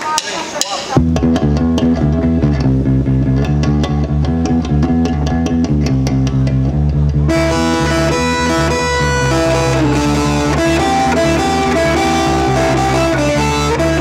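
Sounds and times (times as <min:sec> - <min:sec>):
drums with cymbal ticks: 0:00.0 - 0:06.7
bass and electric guitar riff: 0:01.0 - 0:14.0
sustained guitar and keyboard chords: 0:01.0 - 0:14.0.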